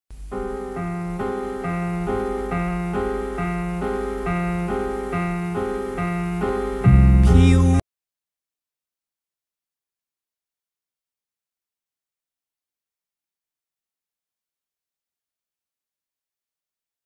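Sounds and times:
theme music with keyboard chords: 0.2s - 7.8s.

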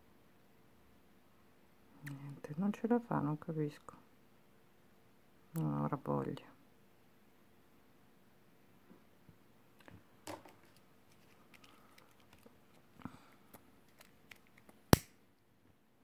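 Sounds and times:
lighter click: 14.9s - 15.1s.

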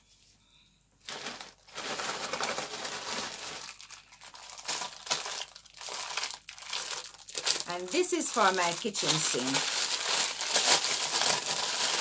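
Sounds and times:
plastic packaging crinkling: 1.0s - 12.0s.

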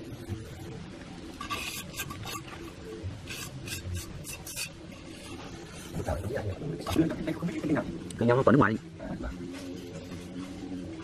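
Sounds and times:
hand tool scraping cement: 3.3s - 5.4s.

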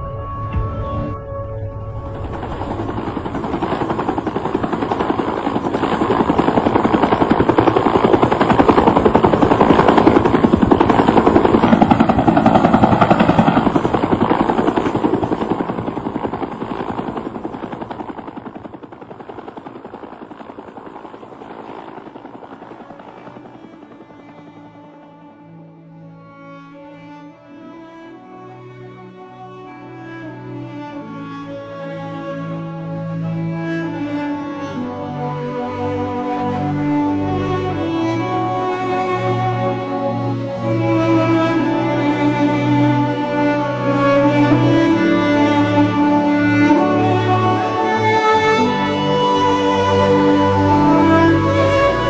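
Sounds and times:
helicopter rotor chopping: 1.9s - 25.6s, 34.8s - 52.0s.

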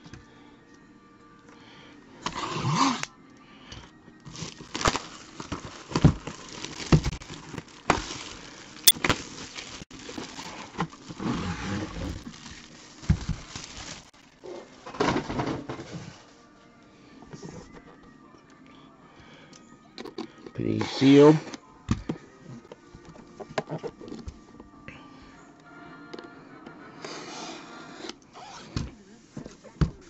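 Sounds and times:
plastic packaging crinkling: 4.3s - 14.8s.

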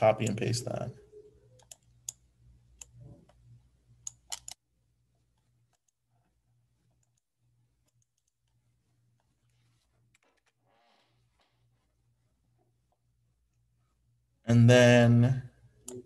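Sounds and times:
computer mouse and keys clicking: 1.5s - 4.6s, 5.2s - 11.6s, 15.8s - 16.0s.

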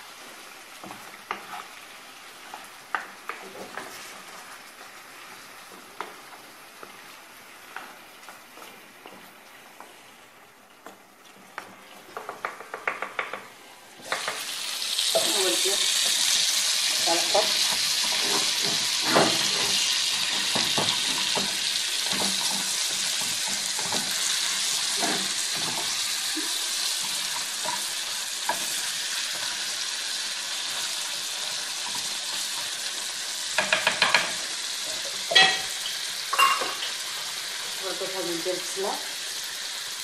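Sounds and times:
meat sizzling: 0.0s - 40.0s
wooden spoon scraping pot: 0.8s - 1.8s, 17.4s - 29.5s
spoon knocking against pot: 12.2s - 13.5s, 33.6s - 34.4s, 35.3s - 35.7s, 36.3s - 36.8s.

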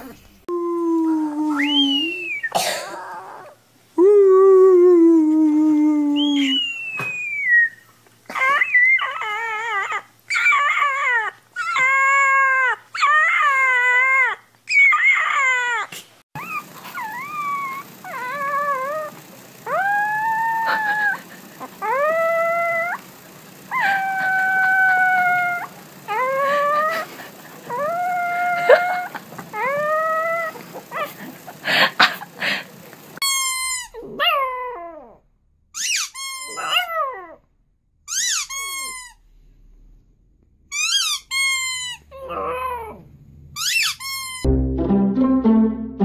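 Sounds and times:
puppies howling: 7.0s - 32.6s, 36.5s - 37.4s.

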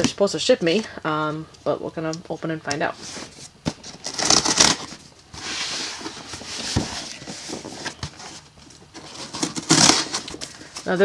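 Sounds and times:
cardboard box scraping: 3.0s - 10.7s.

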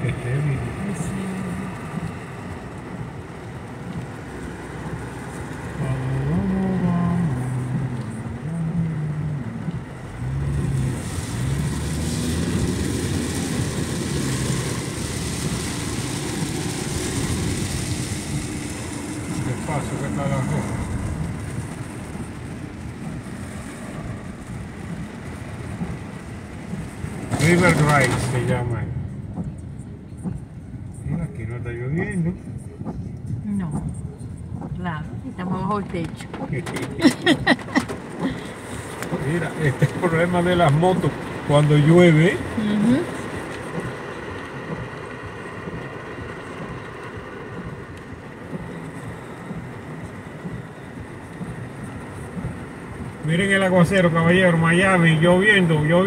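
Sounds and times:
tyre spray on wet road: 0.0s - 29.5s, 35.5s - 56.0s
rain on car: 0.0s - 56.0s.

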